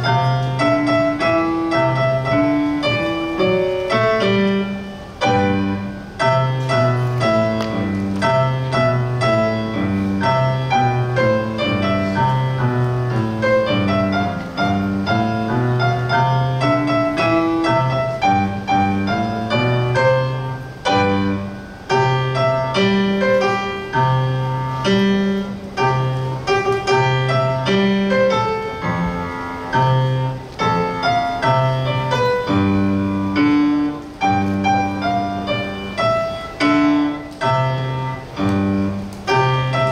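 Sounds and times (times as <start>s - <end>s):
piano piece: 0.0s - 39.9s.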